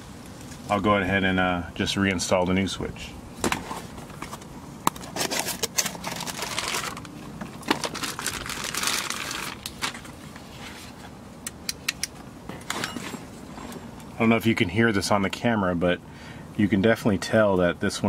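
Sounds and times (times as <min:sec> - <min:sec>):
plastic bag crinkling: 0:05.0 - 0:10.2
sharp clicks and taps: 0:11.4 - 0:12.2.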